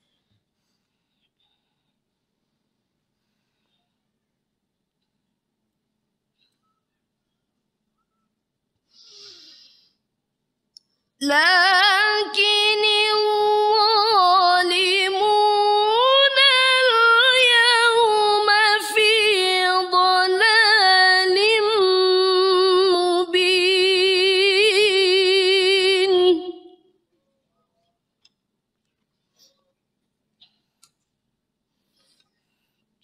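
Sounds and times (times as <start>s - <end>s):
faint breath: 0.0s - 4.2s, 8.8s - 10.1s
woman reciting melodically: 11.2s - 27.0s.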